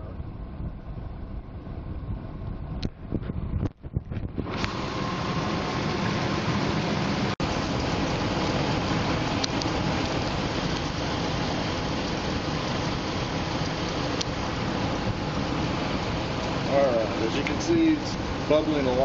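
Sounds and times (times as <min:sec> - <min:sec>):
engine idling: 0:04.3 - 0:19.0.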